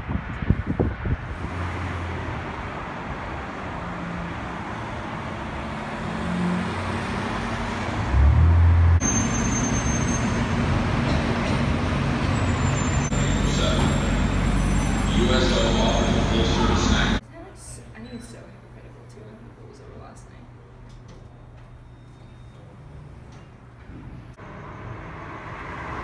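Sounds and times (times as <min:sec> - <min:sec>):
wind buffeting microphone: 0:00.0 - 0:01.8
cars passing: 0:00.0 - 0:17.2, 0:24.3 - 0:26.0
idling traffic rumble: 0:00.0 - 0:21.6.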